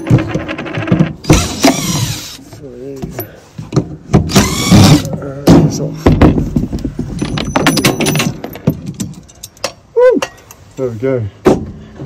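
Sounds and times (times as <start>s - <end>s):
metal clanking and rattling: 3.1s - 10.6s.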